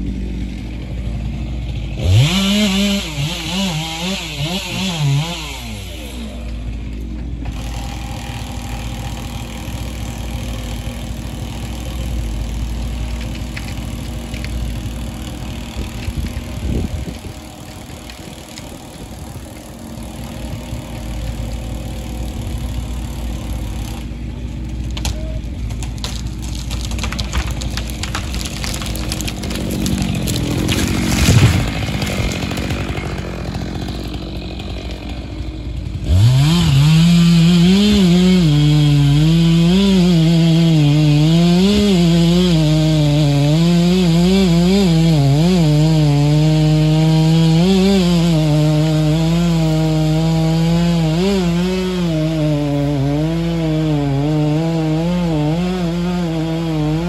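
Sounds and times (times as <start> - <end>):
chainsaw engine revving: 0.0 - 57.0
low drone of forestry machinery: 0.0 - 57.0.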